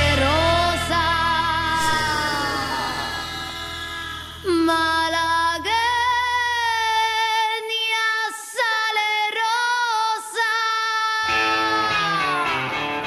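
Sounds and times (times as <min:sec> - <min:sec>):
guitar: 0:00.0 - 0:06.2, 0:11.2 - 0:13.0
woman singing with vibrato: 0:01.1 - 0:12.7.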